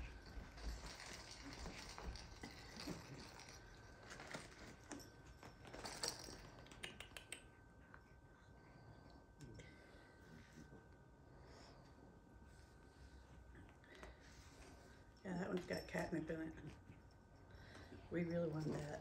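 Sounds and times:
cat scuffling with toys: 0.0 - 6.5.

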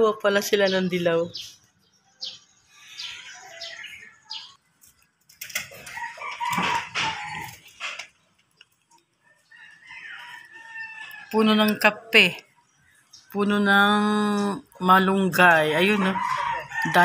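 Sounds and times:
small birds chirping: 0.0 - 17.0
chicken calling: 5.6 - 8.2.

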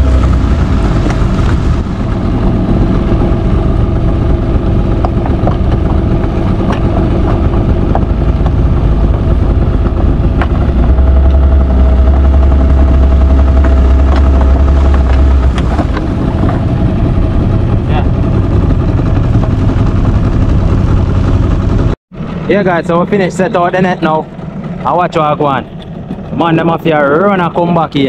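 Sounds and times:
boat engine running: 0.0 - 28.0.

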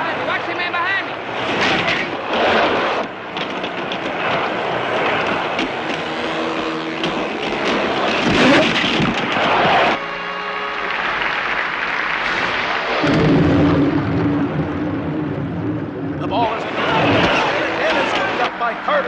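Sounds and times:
motorcycle engine revving: 1.2 - 10.0, 12.9 - 18.4
roller skates rolling: 1.3 - 10.0
players colliding knocks: 1.4 - 10.0, 16.2 - 18.5
arena crowd roaring: 7.8 - 19.0.

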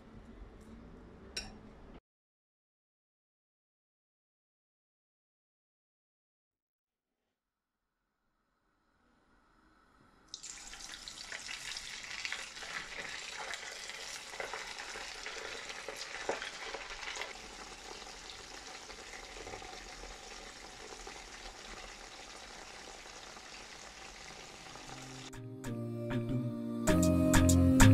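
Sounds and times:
chicken deep-frying in hot oil: 10.3 - 25.3.

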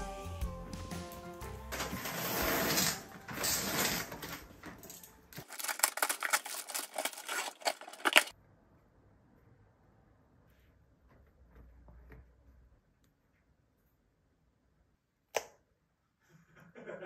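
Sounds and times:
cardboard and plastic rustling: 1.8 - 8.3
paper packing crackling: 5.4 - 8.3.

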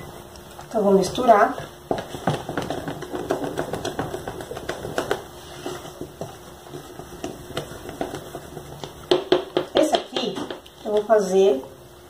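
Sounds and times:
wooden spoon scraping a plastic tub: 1.5 - 9.0.

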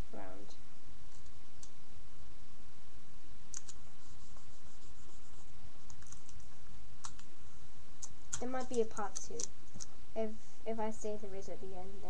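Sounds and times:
low background noise: 0.0 - 12.0
card and tape crackling: 8.0 - 9.9.

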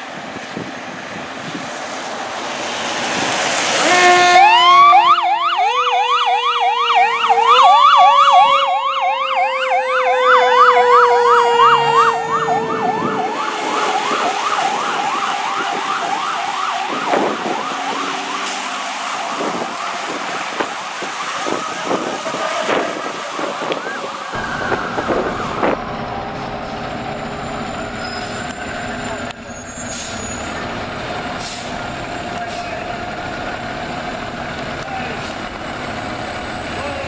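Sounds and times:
siren fast yelp: 3.9 - 25.8
low siren tone winding down: 3.9 - 29.4.

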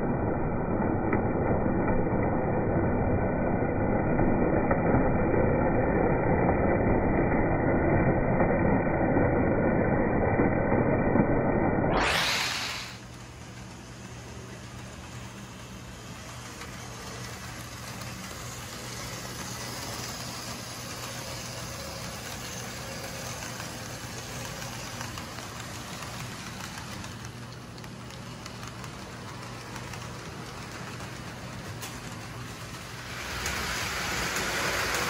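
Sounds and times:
model train whirring: 12.0 - 35.0.

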